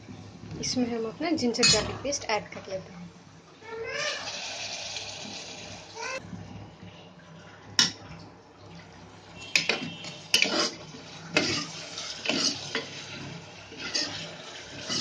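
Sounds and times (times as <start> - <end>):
metal ladle clinking and scraping: 9.6 - 10.8.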